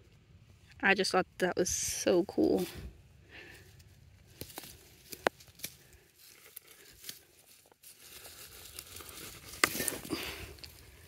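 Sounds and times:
rustling and tearing of roots: 3.7 - 11.0
vine snapping: 4.3 - 7.3, 8.1 - 10.9.

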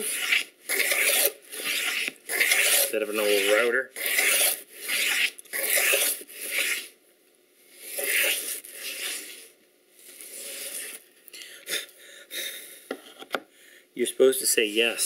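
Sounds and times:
hand plane rasping on wood: 0.0 - 6.8.

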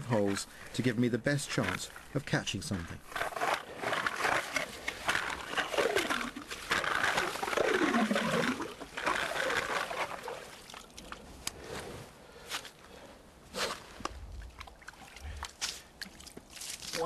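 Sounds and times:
hand ice auger grinding ice: 0.0 - 10.7.

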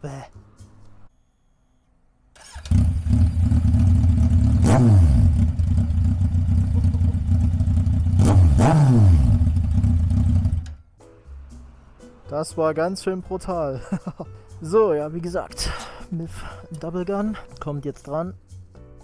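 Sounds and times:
motorcycle engine revving: 2.4 - 10.8
motorcycle engine starting: 2.4 - 10.8.

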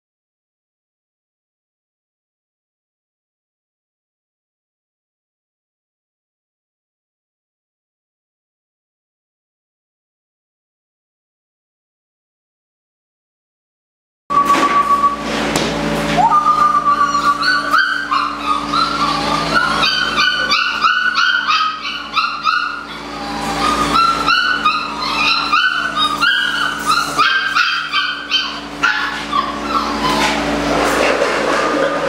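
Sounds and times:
puppies whining and yipping: 16.0 - 32.0.

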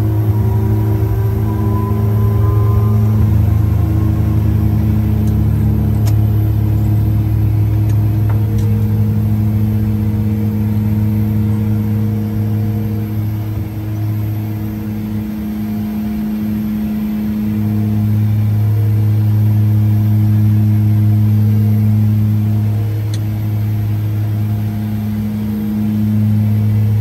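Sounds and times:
turboprop engines droning: 0.0 - 27.0.

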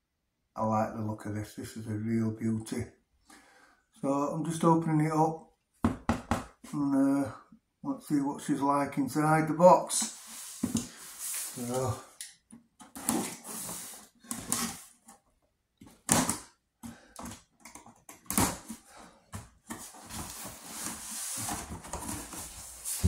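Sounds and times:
cardboard scraping and rustling: 12.9 - 15.2, 19.6 - 23.0.

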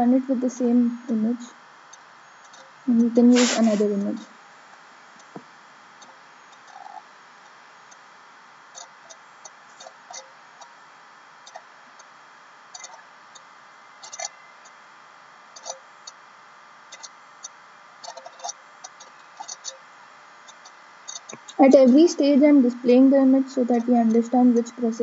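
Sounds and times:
faint hum: 0.0 - 25.0
steady hiss: 0.0 - 25.0.

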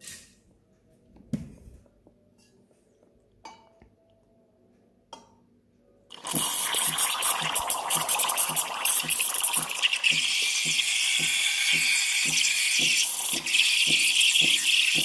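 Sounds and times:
milk pitcher knocks and clicks: 6.3 - 15.0
steam wand hissing in milk: 6.3 - 15.0.

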